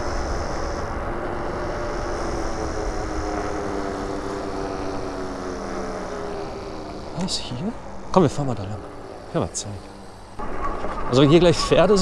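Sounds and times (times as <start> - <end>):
wind rumble on microphone: 0.0 - 6.7
electric bike motor hum: 0.0 - 12.0.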